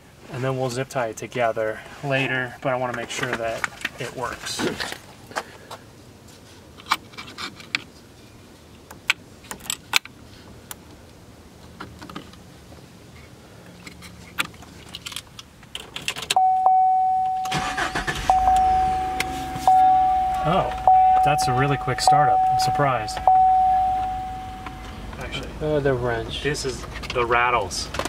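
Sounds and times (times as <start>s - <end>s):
car engine starting and running: 14.4s - 28.0s
steady electronic tone: 16.4s - 25.1s.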